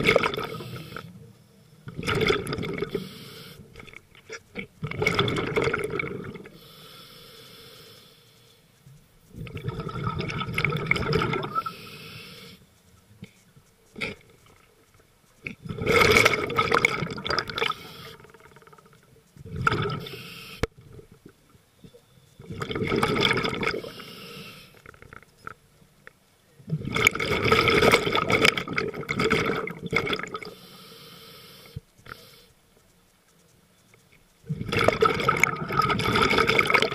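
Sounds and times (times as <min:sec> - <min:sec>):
exhaled bubbles rushing: 0:00.0 - 0:00.6, 0:01.9 - 0:03.0, 0:04.8 - 0:06.5, 0:09.4 - 0:11.7, 0:15.7 - 0:17.8, 0:22.5 - 0:23.8, 0:26.8 - 0:30.5, 0:34.5 - 0:36.9
regulator hiss: 0:00.4 - 0:01.8, 0:02.9 - 0:03.8, 0:06.5 - 0:09.3, 0:11.5 - 0:13.9, 0:17.6 - 0:19.3, 0:20.0 - 0:20.7, 0:23.8 - 0:24.8, 0:30.5 - 0:33.6.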